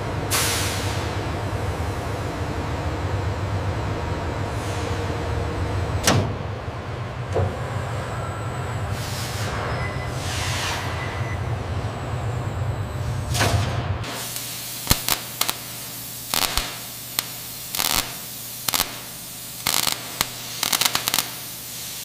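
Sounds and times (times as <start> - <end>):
electric hum and hiss: 12.1 - 22.0
torch crackling and spitting: 14.1 - 22.0.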